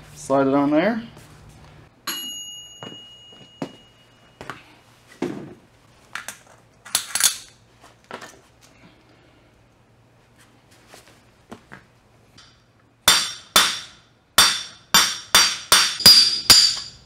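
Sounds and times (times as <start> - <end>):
sharp ringing metal clink: 2.0 - 4.1, 13.1 - 17.0.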